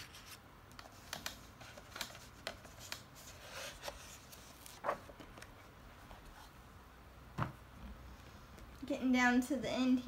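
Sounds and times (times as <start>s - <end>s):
paper pages rustling: 0.0s - 6.5s.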